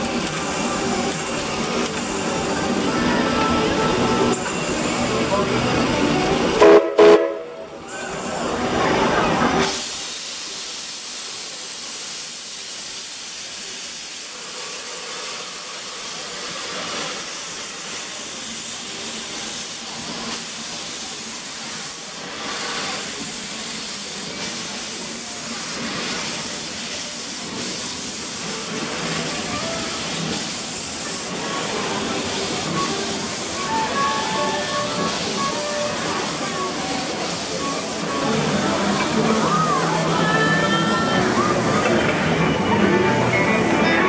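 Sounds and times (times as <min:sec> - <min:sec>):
steam hissing: 0:00.0 - 0:44.0
steam whistle chord: 0:06.6 - 0:07.7, 0:32.8 - 0:36.8.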